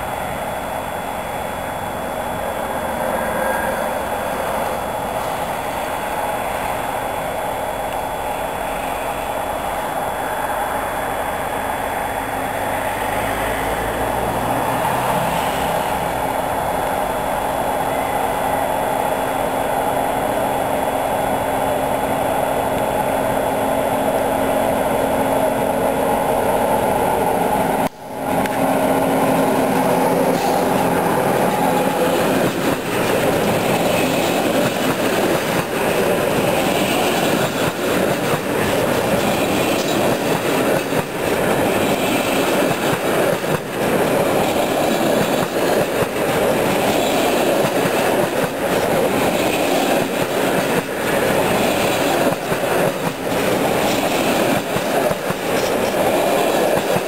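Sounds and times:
electric locomotive humming: 0.0 - 57.0
train wheels clattering over rail joints: 29.8 - 57.0.

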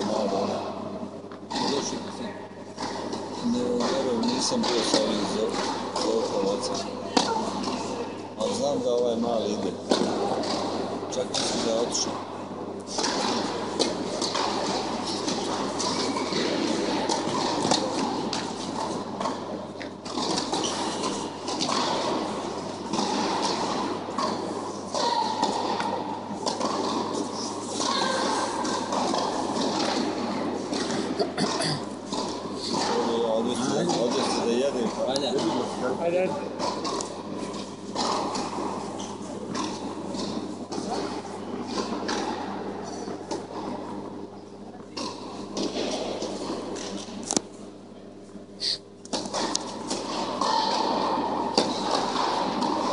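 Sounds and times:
reverberant indoor noise: 0.0 - 52.9
steady low hum: 0.0 - 52.9
tennis balls being struck: 12.9 - 34.5, 49.1 - 52.9.

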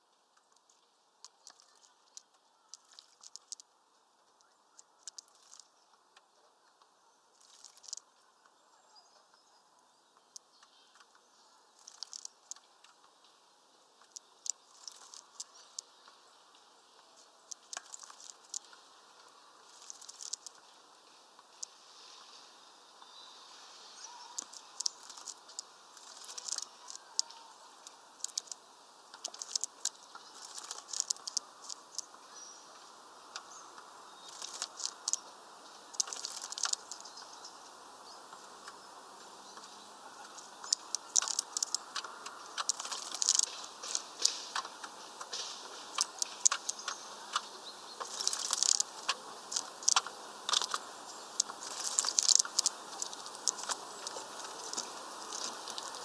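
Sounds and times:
wings fluttering: 0.7 - 3.6, 4.7 - 5.7, 7.4 - 8.0, 11.8 - 13.0, 14.0 - 16.1, 17.2 - 20.8, 23.9 - 32.1, 34.3 - 37.1, 39.6 - 56.0
water droplets pattering: 40.4 - 56.0.

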